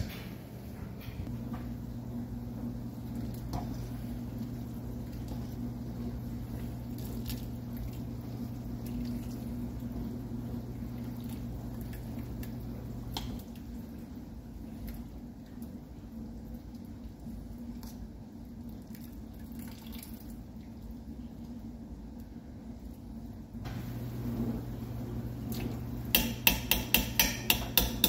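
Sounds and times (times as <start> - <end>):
steady low hum: 0.0 - 28.0
liquid sloshing and dripping: 6.4 - 10.0, 10.8 - 23.1.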